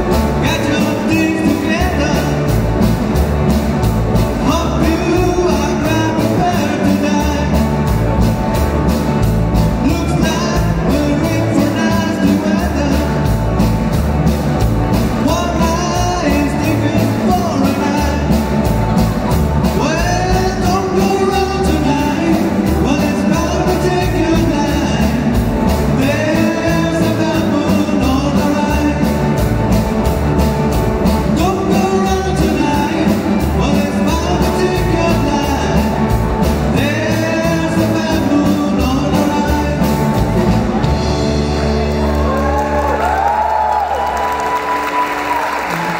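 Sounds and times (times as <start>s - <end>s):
person singing: 0.0s - 2.6s, 4.4s - 7.8s, 9.7s - 13.4s, 15.2s - 18.6s, 19.7s - 29.5s, 31.2s - 41.8s
bass guitar: 0.0s - 45.9s
electric guitars: 0.0s - 45.9s.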